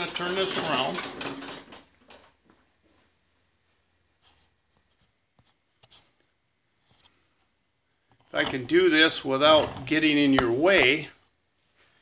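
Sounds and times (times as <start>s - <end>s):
faint handling scrapes and rustles: 4.2s - 7.5s.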